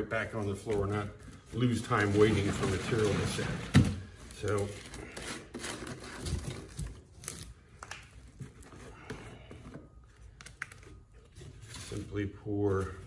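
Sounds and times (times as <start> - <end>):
plastic crinkling: 0.0 - 9.0.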